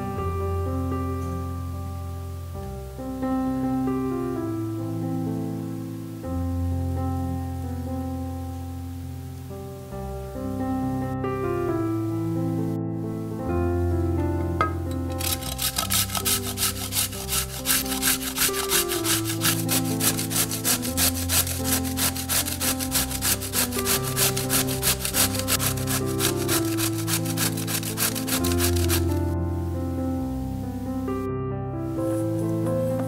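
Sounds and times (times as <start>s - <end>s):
soft piano music: 0.0s - 33.0s
grating on metal grater: 15.1s - 29.2s.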